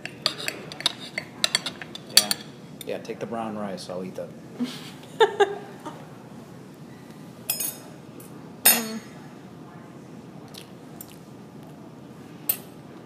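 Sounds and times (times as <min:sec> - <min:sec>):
cutlery clinking on plates: 0:00.0 - 0:02.6, 0:07.5 - 0:07.9, 0:08.6 - 0:09.1.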